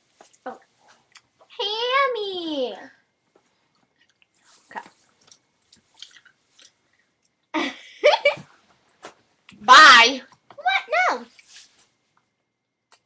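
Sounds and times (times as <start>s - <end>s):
chewing gum mouth clicks: 3.7s - 4.4s.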